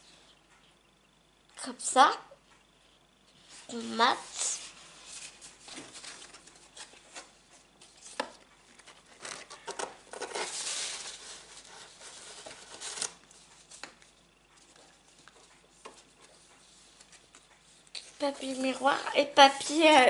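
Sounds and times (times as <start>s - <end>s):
card sheets rustling: 3.4s - 19.0s.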